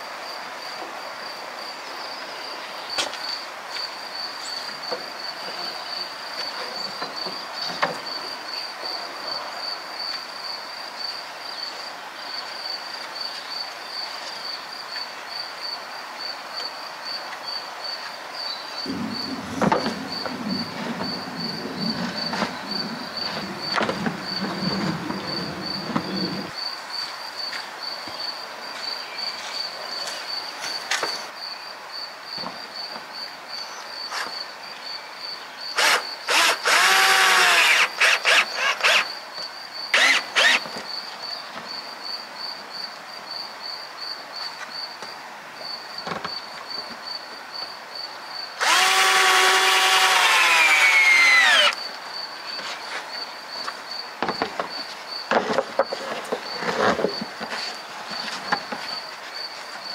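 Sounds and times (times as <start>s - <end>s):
insect chirping: 0.0s - 59.9s
power drill whining: 35.8s - 39.1s, 40.0s - 40.6s, 48.6s - 51.8s.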